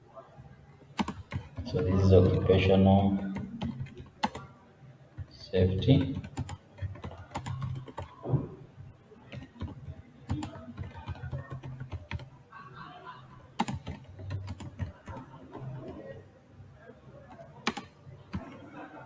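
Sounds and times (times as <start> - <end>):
computer keyboard typing: 1.0 - 1.8, 3.2 - 4.5, 5.2 - 8.2, 9.3 - 12.3, 13.6 - 16.1, 17.3 - 18.6.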